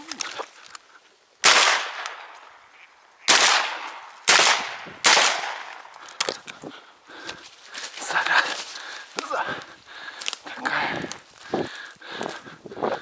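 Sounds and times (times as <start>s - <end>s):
shotgun shots with echo: 1.4s - 2.3s, 3.3s - 5.8s.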